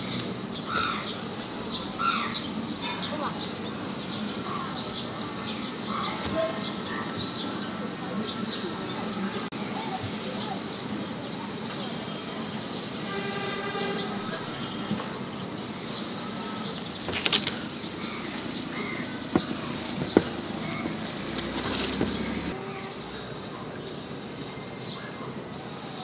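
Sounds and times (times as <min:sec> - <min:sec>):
traffic going by: 0:00.0 - 0:26.0
plastic bag crackling: 0:17.1 - 0:22.2.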